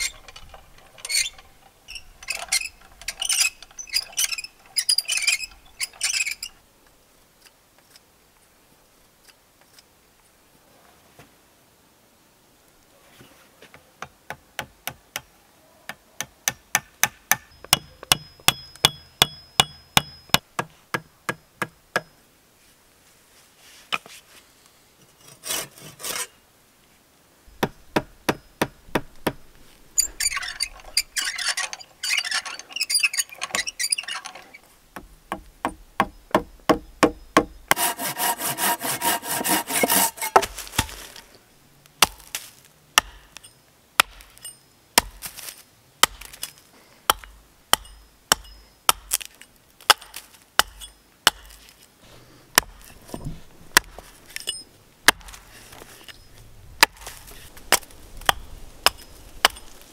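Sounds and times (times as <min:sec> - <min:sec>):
wood being shaved and scraped: 0:25.1 - 0:26.4, 0:28.9 - 0:41.4, 0:56.8 - 0:59.9
fast rasping strokes: 0:37.7 - 0:40.6.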